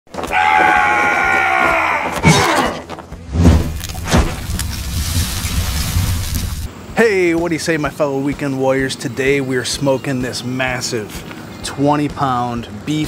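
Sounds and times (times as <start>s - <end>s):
sudden hits: 3.2s - 6.7s
steady low rumble: 3.2s - 6.8s.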